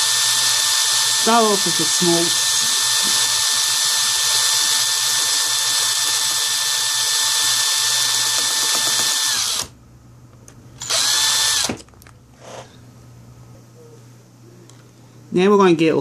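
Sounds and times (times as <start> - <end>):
cordless drill drilling screw: 0.0 - 9.7, 10.8 - 11.8.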